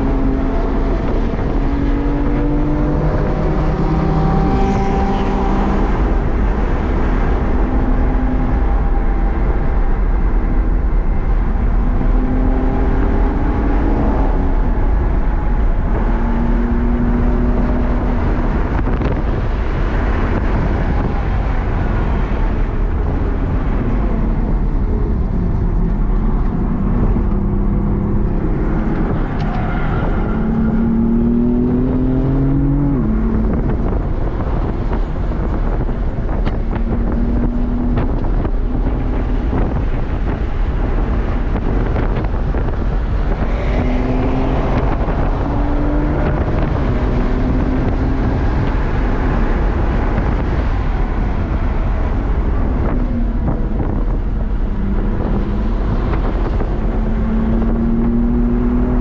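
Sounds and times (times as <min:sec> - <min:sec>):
wind noise: 0:00.0 - 0:59.0
car engine revving hard: 0:26.9 - 0:59.0.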